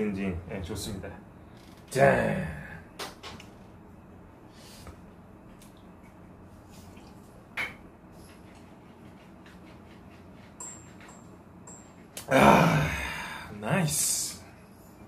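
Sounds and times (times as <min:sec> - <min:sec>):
man exclaiming ahh: 0:12.2 - 0:13.6.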